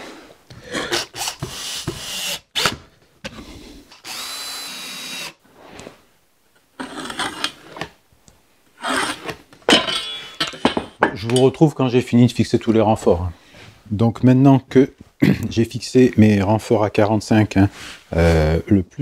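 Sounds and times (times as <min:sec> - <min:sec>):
cordless drill driving screws: 0:00.9 - 0:02.8, 0:04.0 - 0:05.4.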